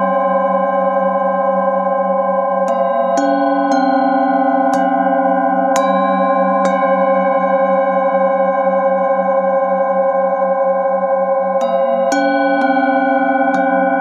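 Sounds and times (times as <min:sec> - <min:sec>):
singing bowl ringing hum: 0:00.0 - 0:14.0
singing bowl struck with mallet: 0:02.3 - 0:09.4, 0:11.4 - 0:14.0.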